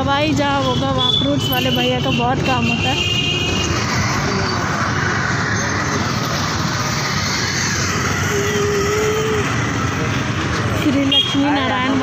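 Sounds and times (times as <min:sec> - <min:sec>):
road traffic: 0:00.0 - 0:12.0.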